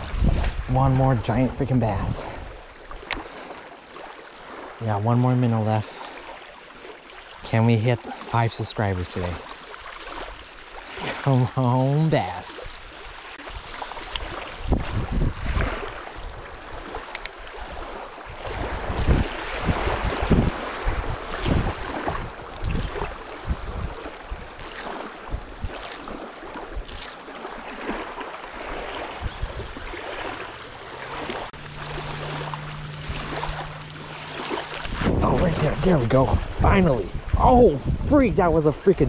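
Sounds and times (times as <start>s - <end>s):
wind buffeting microphone: 0.0s - 3.4s, 12.6s - 39.0s
small waves lapping: 0.0s - 39.0s
low steady hum: 30.4s - 38.6s.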